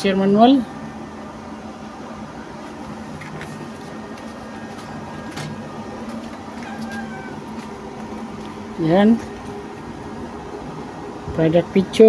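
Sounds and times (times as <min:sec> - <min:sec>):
background hum: 0:00.0 - 0:12.0
paper pages rustling: 0:02.6 - 0:08.6.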